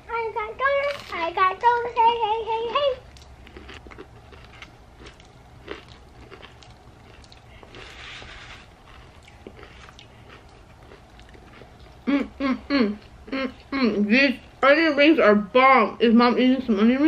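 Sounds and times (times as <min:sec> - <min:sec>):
wet chewing clicks and smacks: 0:03.1 - 0:07.7, 0:08.9 - 0:12.0
paper napkin rustle: 0:07.8 - 0:09.0.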